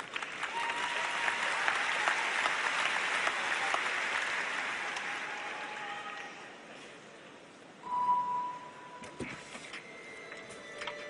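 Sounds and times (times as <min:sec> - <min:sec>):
crowd applauding: 0:00.0 - 0:06.6.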